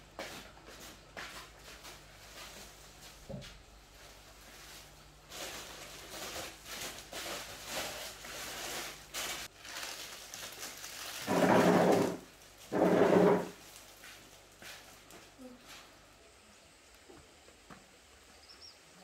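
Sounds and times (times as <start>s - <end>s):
plastic packaging rustling: 3.9s - 15.0s.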